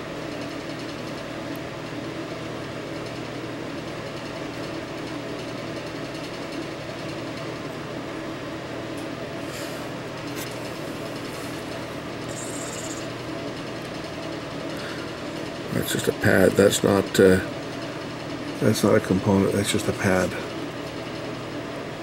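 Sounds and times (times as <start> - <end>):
fan drone with low hum: 0.0 - 22.0.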